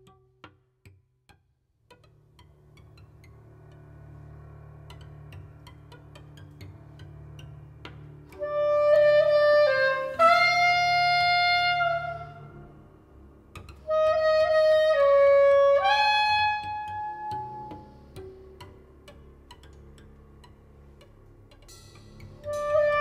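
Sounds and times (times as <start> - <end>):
reed woodwind long notes: 8.3 - 13.1, 13.8 - 18.4, 22.4 - 23.0.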